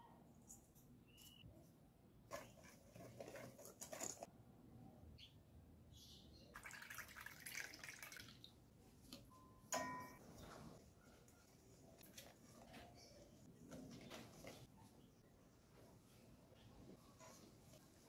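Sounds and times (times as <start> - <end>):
milk pouring into plastic cup: 6.6 - 8.5.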